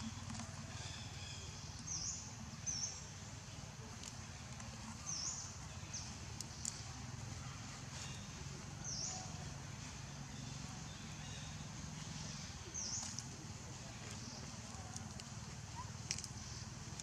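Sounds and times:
faint clicks: 0:06.4 - 0:07.0, 0:14.1 - 0:17.0.

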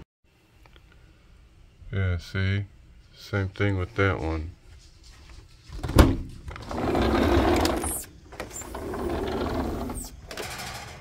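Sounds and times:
sliding door rolling on track: 0:06.5 - 0:11.0.

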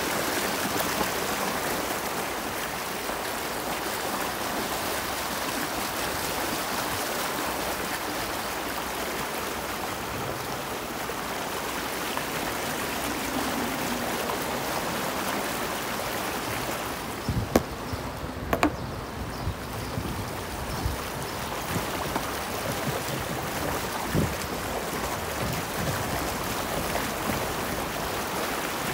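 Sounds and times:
water splashing from wheel: 0:00.0 - 0:28.9
sharp knocks: 0:17.5 - 0:17.8, 0:18.5 - 0:18.8.

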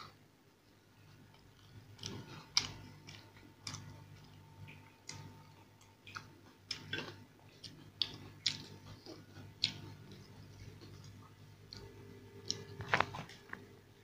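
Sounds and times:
wet chewing mouth clicks: 0:01.6 - 0:11.1.

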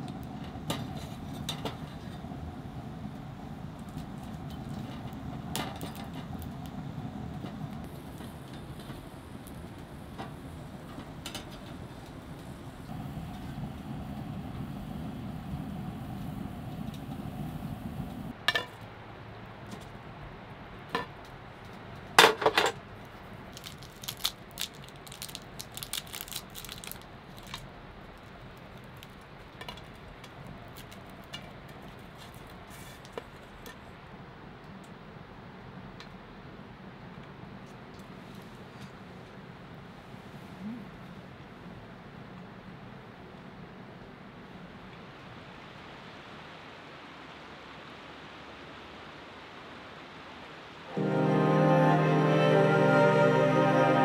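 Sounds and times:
low steady rumble: 0:00.0 - 0:18.3.

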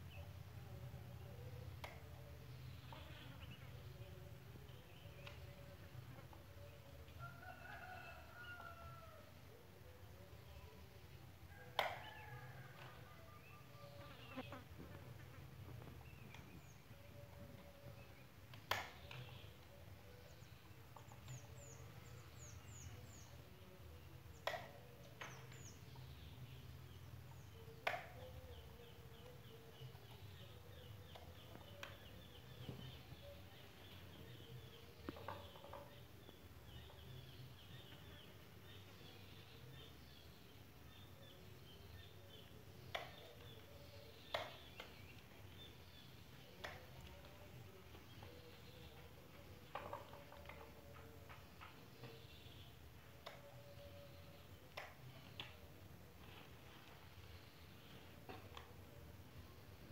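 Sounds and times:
bird chirping: 0:12.2 - 0:59.9.

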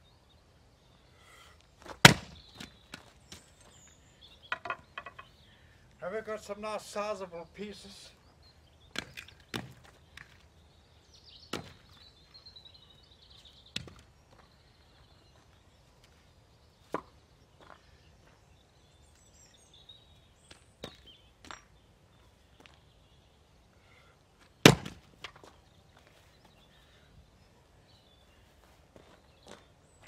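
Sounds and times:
wooden knocks of firewood: 0:01.8 - 0:03.1, 0:04.5 - 0:05.3, 0:08.9 - 0:10.4, 0:11.5 - 0:11.9, 0:13.7 - 0:14.1, 0:24.6 - 0:25.5
axe splitting log: 0:02.0 - 0:02.7, 0:24.6 - 0:25.4.

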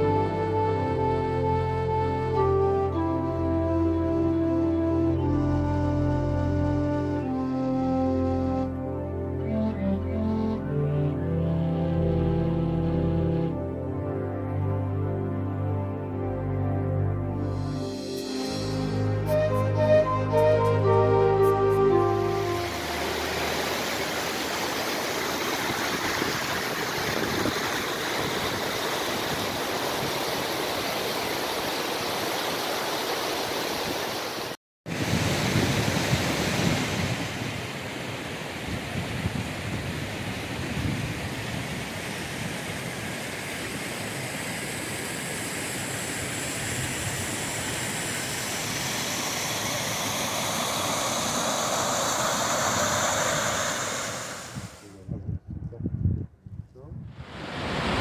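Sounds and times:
waterfall rushing water: 0:17.9 - 0:54.8, 0:57.3 - 0:58.0.

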